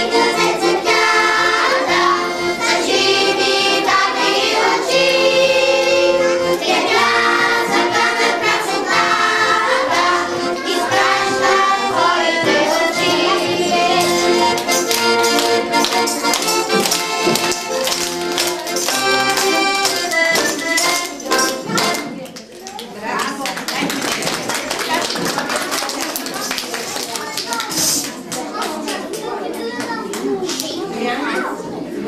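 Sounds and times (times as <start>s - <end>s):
children singing: 0.0s - 21.9s
accordion playing a song: 0.0s - 22.2s
children clapping: 13.9s - 30.8s.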